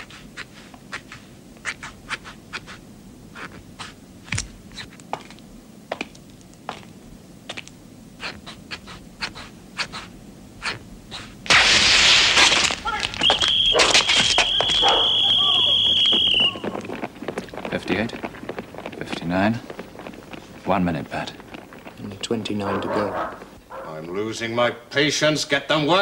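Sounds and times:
boots clicking on cobblestones: 4.3s - 7.7s, 12.4s - 23.6s.

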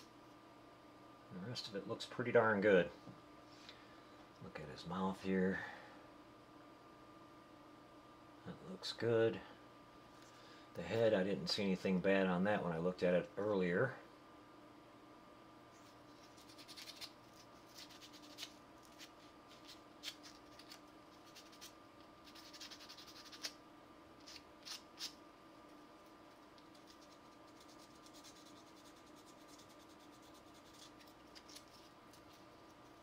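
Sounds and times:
faint steady hum: 0.0s - 33.0s
scratching and rubbing on resin: 15.8s - 23.6s, 26.7s - 33.0s.

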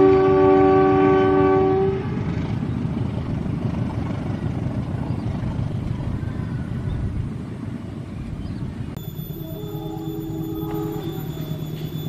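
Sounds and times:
locomotive horn blast: 0.0s - 2.3s, 9.2s - 12.0s
train rumbling: 0.0s - 12.0s.

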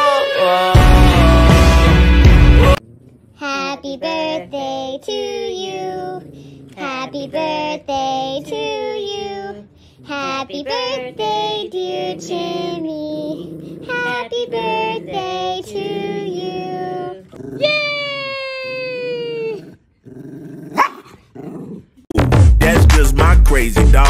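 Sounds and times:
backing music: 0.0s - 2.8s, 22.2s - 24.0s
high voice singing: 0.0s - 2.8s, 3.4s - 17.9s, 22.6s - 24.0s.

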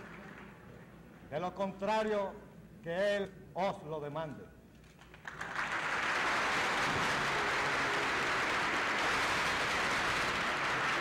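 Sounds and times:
large audience applauding: 5.0s - 11.0s.

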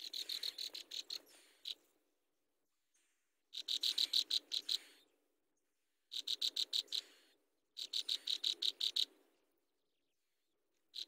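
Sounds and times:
nestlings chirping: 0.0s - 1.9s, 3.5s - 5.0s, 6.1s - 7.2s, 7.8s - 9.2s.

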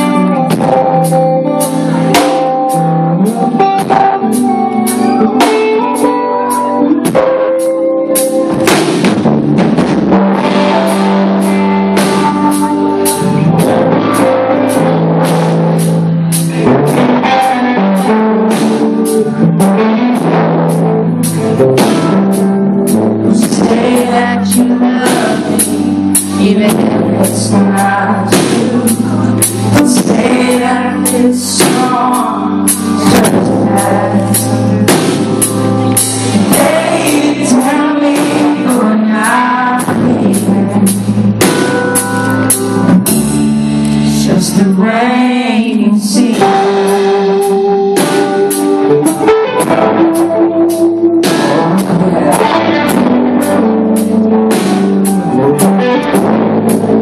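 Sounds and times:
drum kit beat: 0.0s - 44.1s, 46.3s - 57.0s
electric guitar: 0.0s - 57.0s
man singing: 16.9s - 41.7s, 43.9s - 49.3s, 51.2s - 54.1s.

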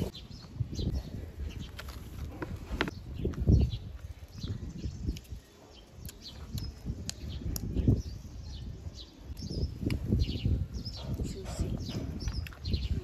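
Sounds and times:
wet chewing: 5.1s - 7.7s.

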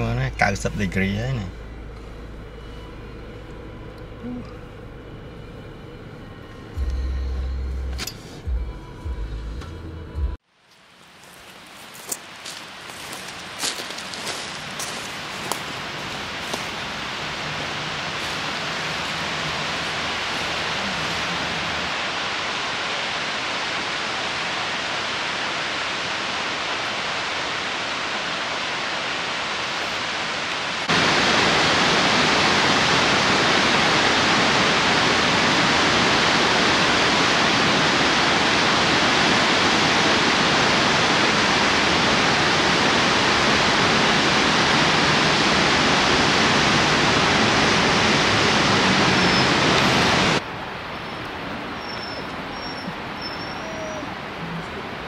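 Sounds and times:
creek rushing over rocks: 30.2s - 50.4s.

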